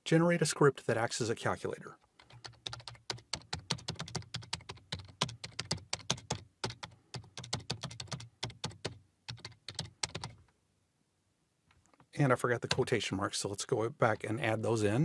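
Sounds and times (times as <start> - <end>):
keyboard typing: 2.2 - 10.4, 12.6 - 13.0.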